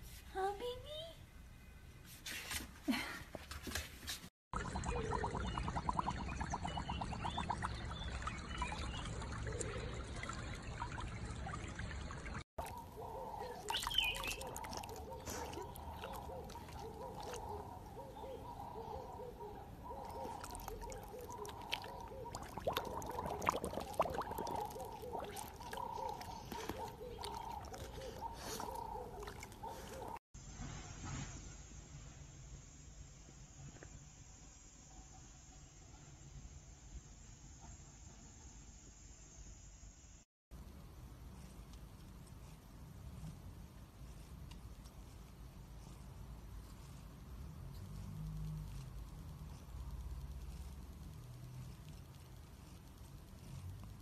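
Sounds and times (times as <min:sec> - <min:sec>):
water trickling and sloshing: 0:04.6 - 0:18.9, 0:19.8 - 0:30.2
water lapping: 0:04.6 - 0:19.2, 0:19.8 - 0:30.2
faint pitched sounds: 0:04.6 - 0:30.2.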